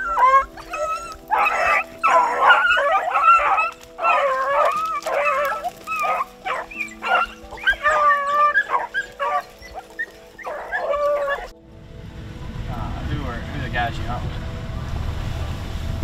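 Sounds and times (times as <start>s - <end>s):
hounds baying: 0.0s - 11.6s
low music drone: 0.0s - 16.0s.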